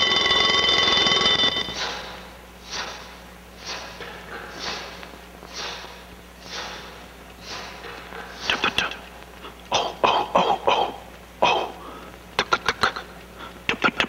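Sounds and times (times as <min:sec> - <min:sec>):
alarm clock ringing: 0:00.0 - 0:01.9.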